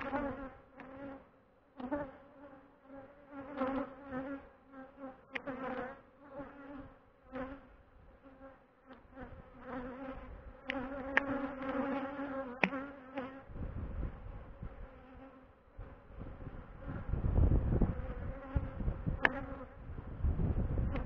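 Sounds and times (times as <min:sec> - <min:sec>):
bees buzzing: 0:01.8 - 0:13.6, 0:17.9 - 0:19.8.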